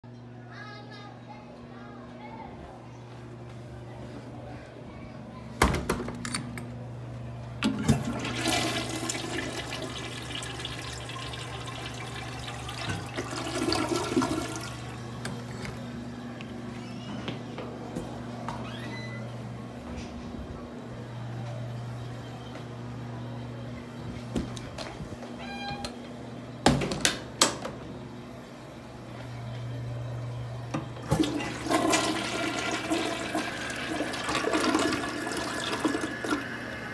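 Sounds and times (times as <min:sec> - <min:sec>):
steady low hum: 0:00.1 - 0:33.7
toilet flush knock: 0:07.7 - 0:14.8, 0:31.0 - 0:36.7
water rushing through toilet bowl: 0:07.8 - 0:15.0, 0:31.0 - 0:36.9.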